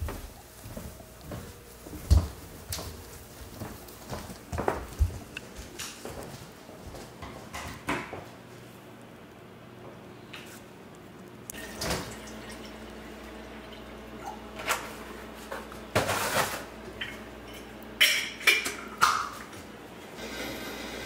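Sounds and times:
water pouring into kettle: 11.5s - 14.4s.

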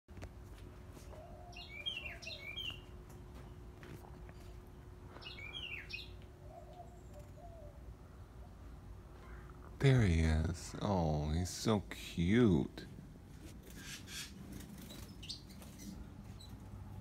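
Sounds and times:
wren chirping: 1.4s - 2.9s, 5.2s - 7.8s, 13.6s - 16.7s.

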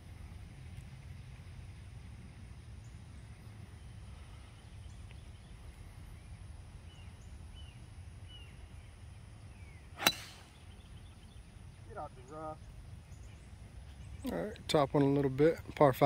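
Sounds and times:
faint birdsong chirps: 0.1s - 16.0s
golf club striking ball: 10.0s - 10.5s.

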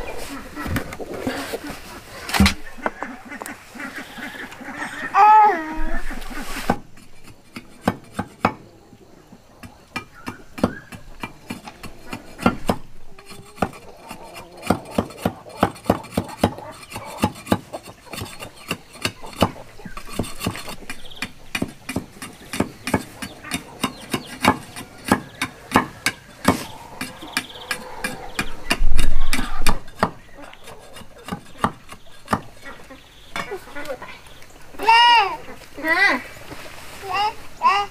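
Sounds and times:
cleaver chopping wood on block: 10.0s - 12.9s, 14.6s - 26.7s, 30.9s - 32.5s.

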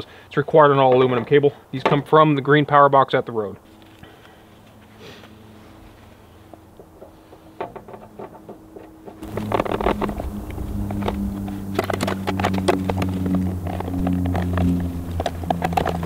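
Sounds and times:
steady low hum: 3.7s - 16.0s.

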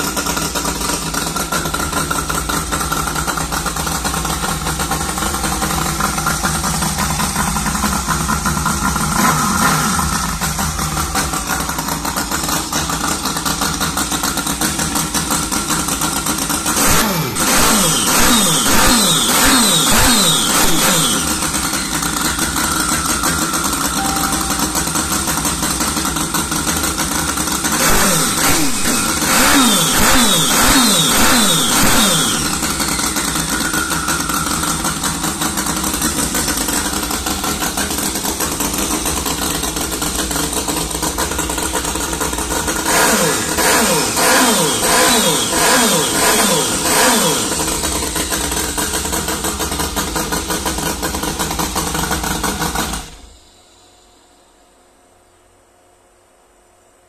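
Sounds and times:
miniature engine running: 0.0s - 53.3s
engine throttle blips: 16.8s - 26.0s, 27.3s - 34.5s.

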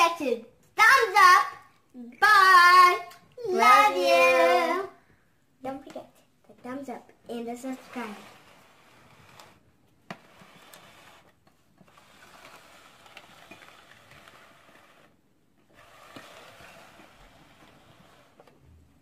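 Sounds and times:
plastic tray scraping on tabletop: 7.4s - 19.0s.

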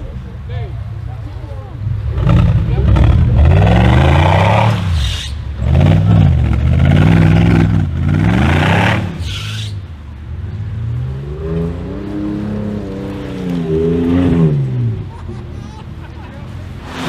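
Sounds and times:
engine revving: 2.0s - 9.7s.

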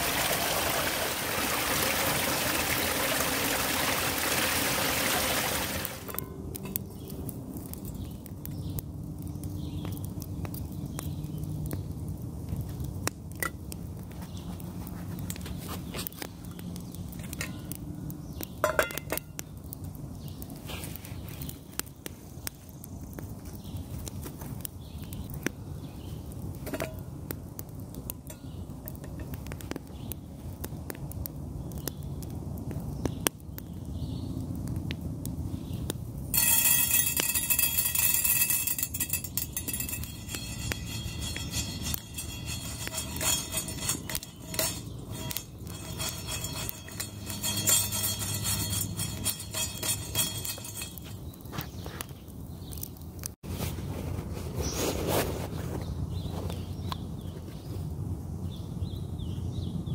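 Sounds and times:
coffee beans rattling in pan: 0.0s - 6.2s, 36.4s - 51.2s
campfire crackling: 0.0s - 54.3s
metal clinking on stone: 4.9s - 6.8s, 18.6s - 19.4s, 36.3s - 51.4s.

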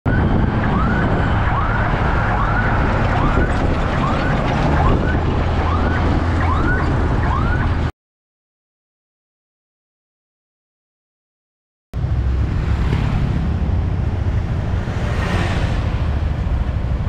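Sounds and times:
road rumble of engine and tyres: 0.1s - 7.9s, 12.0s - 17.0s.

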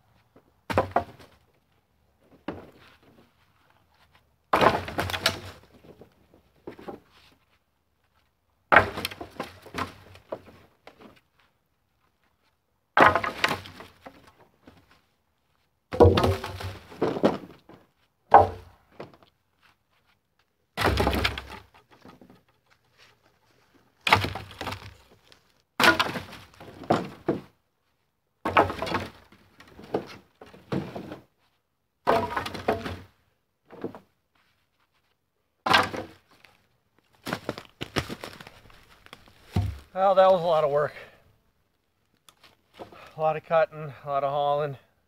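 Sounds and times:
branches cracking and snapping: 24.0s - 26.7s, 37.2s - 39.9s.

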